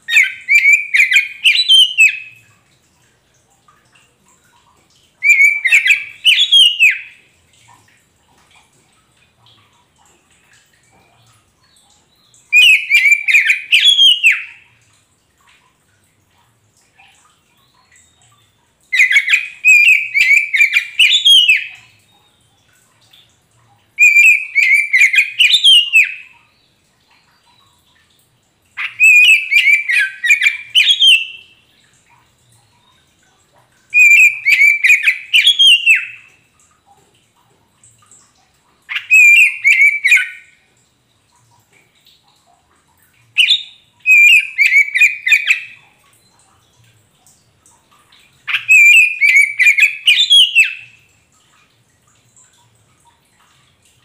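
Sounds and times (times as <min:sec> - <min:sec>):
bird singing whistled notes: 0:00.1 - 0:02.3, 0:05.2 - 0:07.1, 0:12.5 - 0:14.6, 0:19.0 - 0:22.2, 0:24.0 - 0:26.2, 0:28.8 - 0:31.5, 0:34.0 - 0:36.2, 0:38.9 - 0:40.5, 0:43.4 - 0:46.3, 0:48.5 - 0:50.8.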